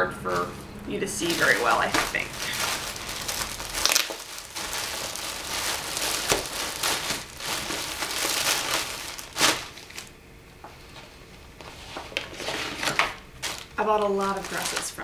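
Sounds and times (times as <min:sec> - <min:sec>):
plastic bag crinkling: 0:00.2 - 0:10.2, 0:12.2 - 0:15.0.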